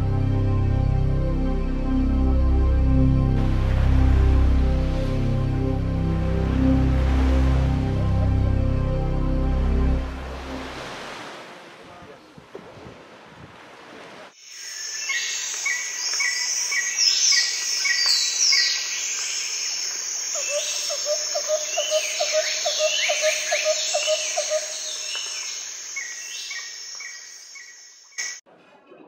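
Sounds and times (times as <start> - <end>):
high insect drone: 14.4 - 28.4
birds singing and chirping: 14.5 - 28.4.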